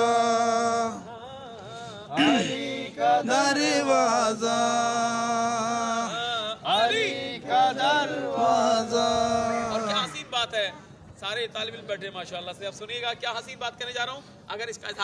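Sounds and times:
short breaths: 0:01.6 - 0:02.1.

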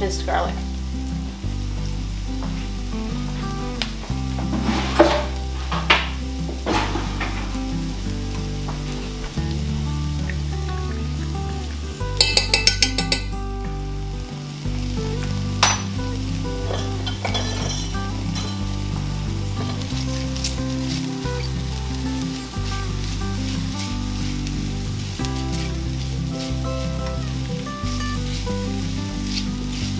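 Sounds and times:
low background music: 0:00.0 - 0:29.9
onion and garlic sizzling in oil: 0:00.0 - 0:29.9
utensil tapping a pan: 0:04.3 - 0:07.7, 0:12.1 - 0:13.4, 0:15.6 - 0:16.0, 0:16.6 - 0:21.5.

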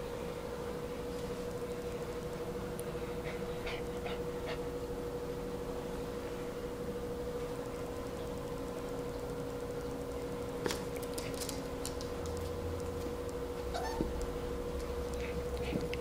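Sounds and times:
steady hum: 0:00.0 - 0:16.0
dog claws clicking on wood: 0:10.6 - 0:13.1.

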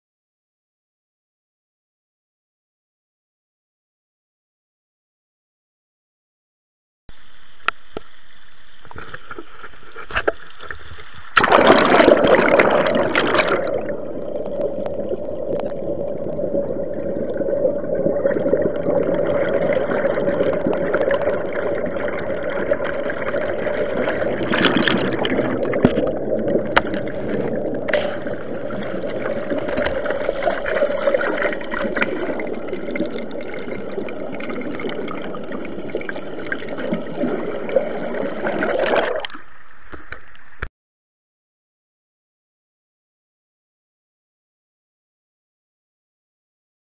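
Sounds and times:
muffled underwater water rush: 0:07.1 - 0:40.7.

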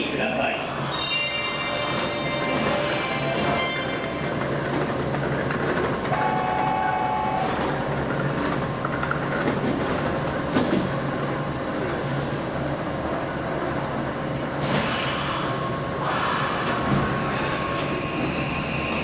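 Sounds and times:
electric train humming: 0:00.8 - 0:14.6.

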